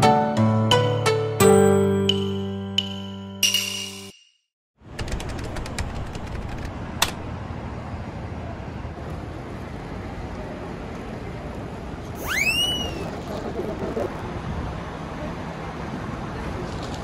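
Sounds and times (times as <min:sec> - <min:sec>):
traffic hum: 0:04.8 - 0:17.0
whistle-like call: 0:12.2 - 0:13.1.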